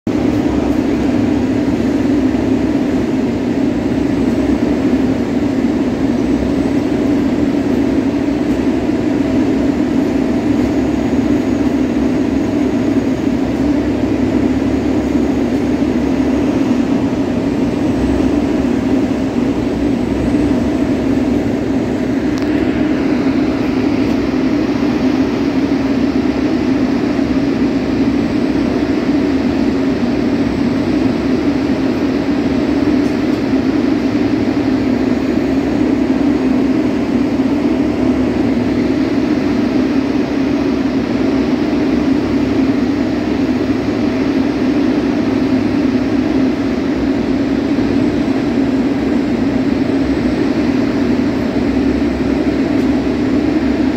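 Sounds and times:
freight train rumbling slowly: 0.1s - 53.9s.

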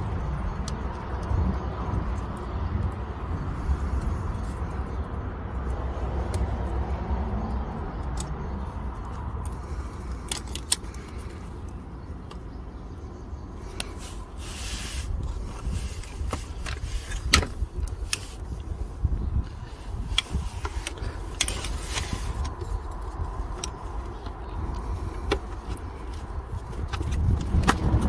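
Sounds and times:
steady low rumble: 0.0s - 28.0s
sharp metallic clicks: 7.7s - 12.6s
scrape: 13.9s - 17.2s.

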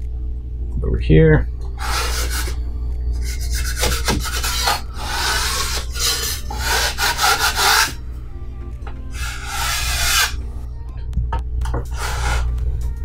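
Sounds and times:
drywall knife scraping: 1.8s - 2.6s, 3.2s - 8.0s, 9.2s - 10.4s, 11.9s - 12.5s.

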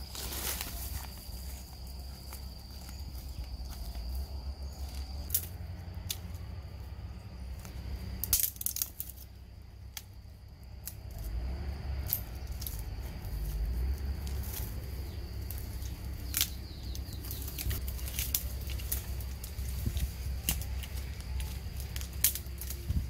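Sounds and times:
twigs and leaves crackling: 0.0s - 23.0s.

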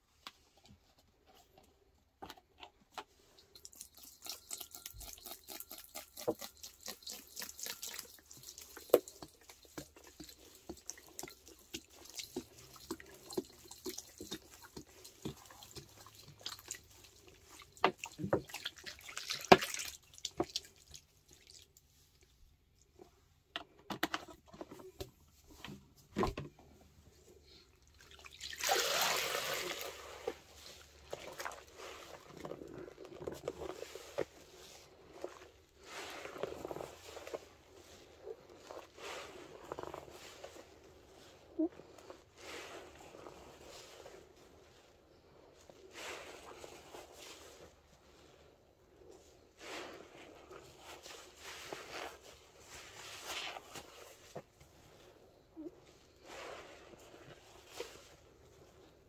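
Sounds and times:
sponge sloshing in bowl: 3.2s - 22.2s, 27.1s - 55.2s, 56.0s - 58.9s
liquid trickling and splashing: 3.3s - 21.8s, 27.9s - 34.8s.

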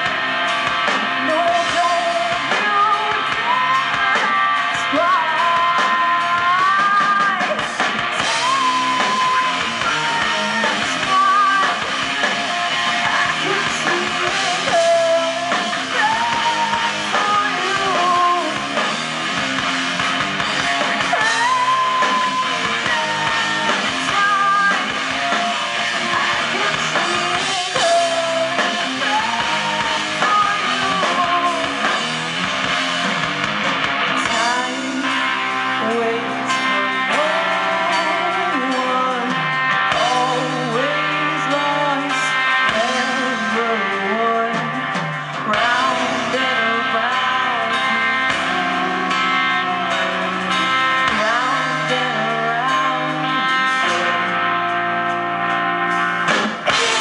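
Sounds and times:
drum kit: 0.0s - 57.0s
electric guitars: 0.0s - 57.0s
woman singing: 1.0s - 19.0s, 21.0s - 32.2s, 34.2s - 54.5s.

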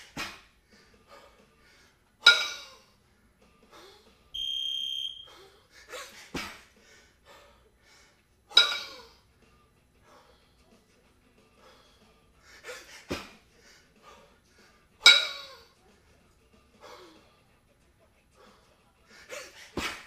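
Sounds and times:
heavy breathing: 0.0s - 2.1s, 2.9s - 4.2s, 5.2s - 8.4s, 10.0s - 10.8s, 11.4s - 17.5s, 18.3s - 20.0s
kettlebells clanking: 2.2s - 2.9s, 8.5s - 9.2s, 15.0s - 15.6s
electronic beep: 4.4s - 5.3s.

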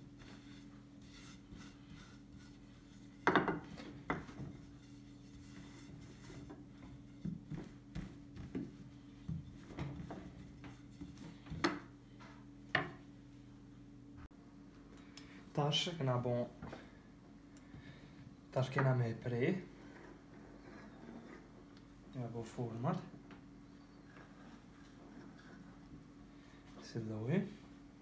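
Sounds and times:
rolling pin rubbing on dough: 0.0s - 11.7s, 19.5s - 21.6s, 23.9s - 26.0s
steady low hum: 0.0s - 28.0s
wood knocking on wood: 3.2s - 4.5s.

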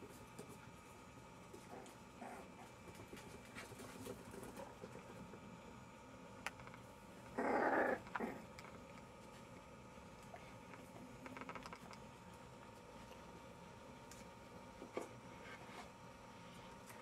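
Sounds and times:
dog growling bark: 1.7s - 2.6s, 7.4s - 8.6s.

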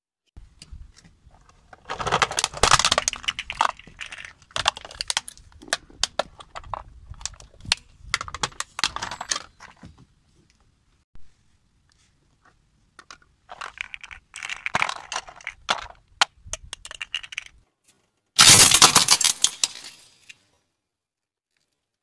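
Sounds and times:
plastic toy cracking and snapping: 1.8s - 9.4s, 13.0s - 17.6s.

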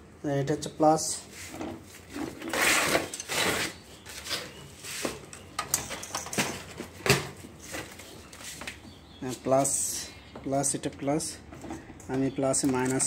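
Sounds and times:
battery leads rubbing and scraping: 1.5s - 5.1s.

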